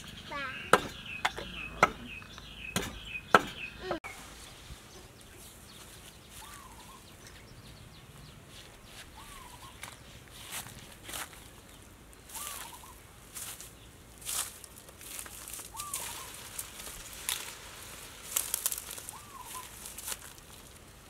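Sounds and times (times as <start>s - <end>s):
bird calls: 0.0s - 10.2s, 12.3s - 13.1s, 15.6s - 16.7s, 18.8s - 20.2s
cleaver chopping on wooden board: 0.7s - 2.1s, 2.8s - 3.6s.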